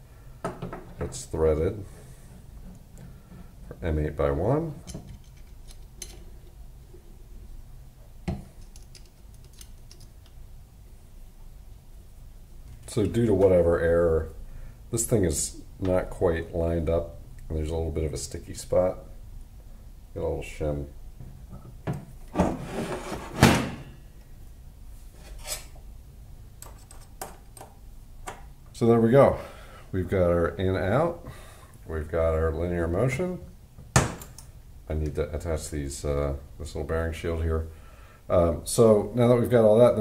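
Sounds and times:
metallic clicks of small parts: 0:04.8 - 0:06.6, 0:08.5 - 0:10.4
metal scraping: 0:22.4 - 0:24.0, 0:25.2 - 0:25.8.

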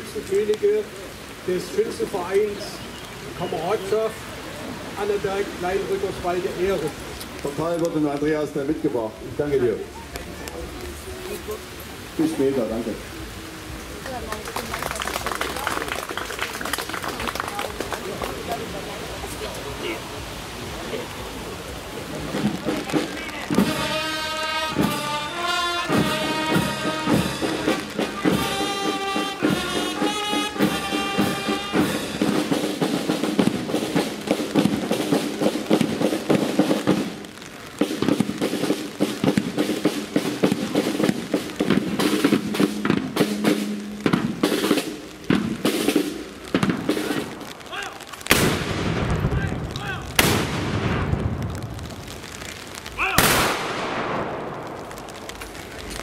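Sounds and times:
marching band held notes: 0:00.0 - 0:51.1
rapid snare drum beats: 0:22.2 - 0:37.2, 0:37.8 - 0:47.4
gun shots with echo: 0:50.2 - 0:51.1, 0:53.2 - 0:54.7.

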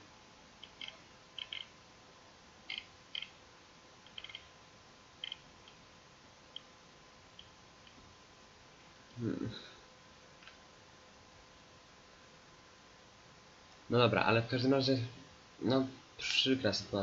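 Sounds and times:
faint electrical whine: 0:00.0 - 0:17.0
faint irregular clicks: 0:00.6 - 0:01.8, 0:02.6 - 0:03.4, 0:04.0 - 0:04.5, 0:05.2 - 0:05.8, 0:06.5 - 0:06.7, 0:07.3 - 0:08.0, 0:10.4 - 0:10.6.

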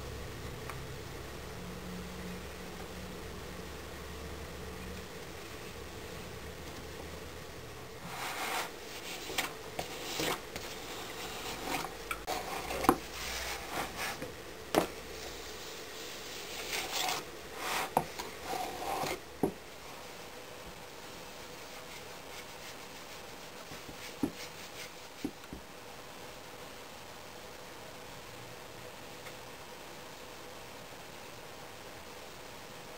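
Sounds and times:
steel spatula scraping sand: 0:08.0 - 0:14.2, 0:15.3 - 0:19.2.

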